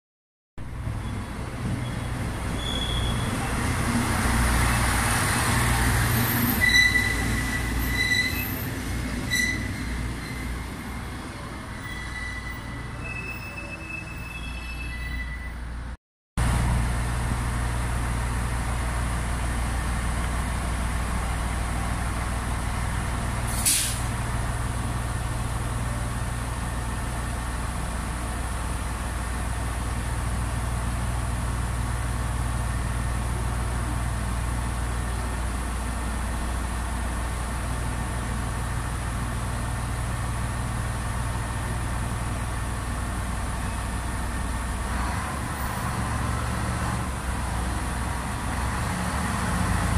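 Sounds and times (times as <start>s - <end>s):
compressed air hiss: 23.5s - 24.1s.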